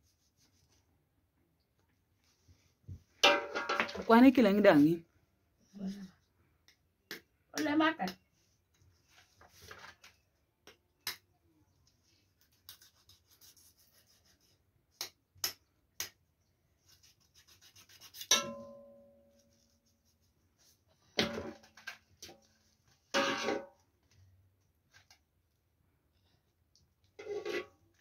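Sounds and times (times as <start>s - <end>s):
metal pot clanging and ringing: 18.3s - 19.2s.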